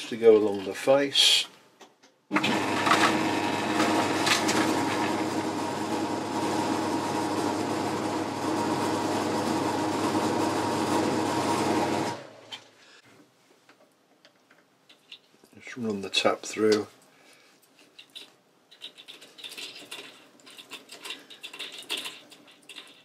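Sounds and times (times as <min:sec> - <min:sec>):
lathe humming: 0:02.4 - 0:12.3.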